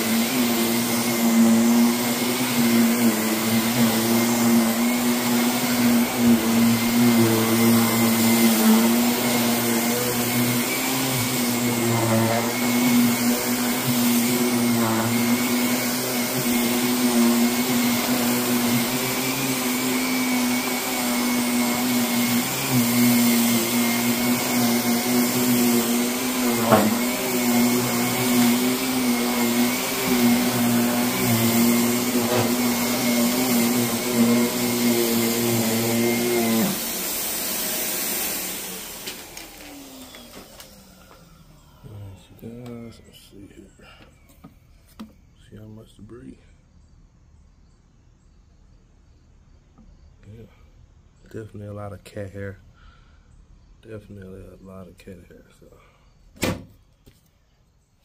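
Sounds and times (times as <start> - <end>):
vacuum motor running: 0.0 - 45.2.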